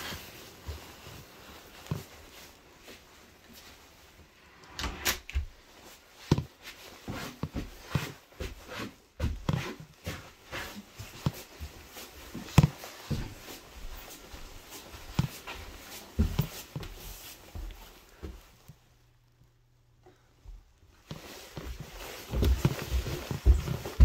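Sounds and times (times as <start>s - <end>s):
footsteps on wooden floorboards: 5.4s - 18.8s, 20.5s - 24.0s.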